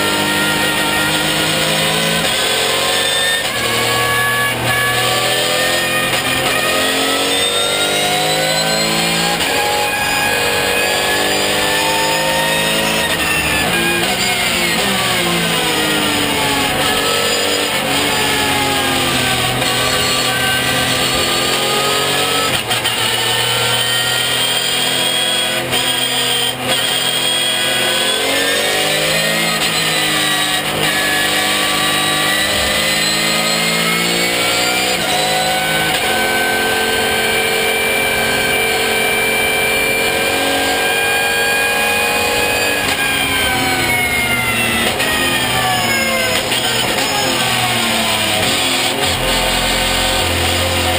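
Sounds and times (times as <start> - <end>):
race car engine revving: 0.0 - 50.9.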